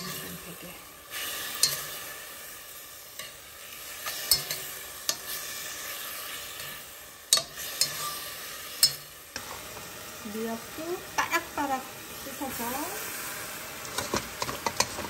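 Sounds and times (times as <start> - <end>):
beef sizzling in a pot: 0.0 - 15.0
utensil clinking against pot: 4.0 - 5.4.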